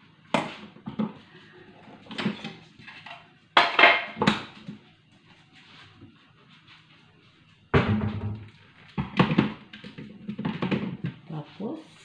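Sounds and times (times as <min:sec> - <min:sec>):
kitchenware knocking and clattering: 0:07.8 - 0:11.2.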